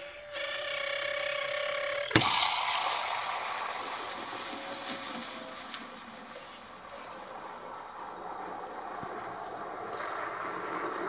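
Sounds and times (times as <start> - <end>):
moka pot whistling: 0.0 - 5.6
steam burst from pressure valve: 2.1 - 4.8
hissing gurgling froth: 2.1 - 11.0.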